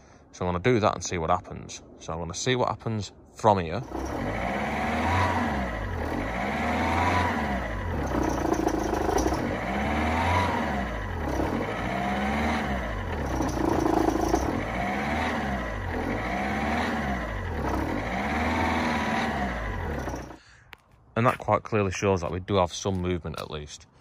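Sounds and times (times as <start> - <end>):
diesel engine revving: 3.8 - 20.4.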